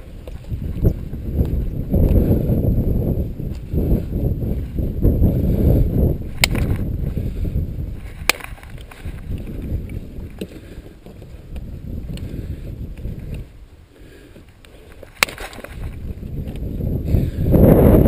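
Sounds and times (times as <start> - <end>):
dry twigs and grass rustling: 0.0 - 17.7
twigs snapping: 6.3 - 6.9, 8.0 - 13.5, 14.4 - 16.7.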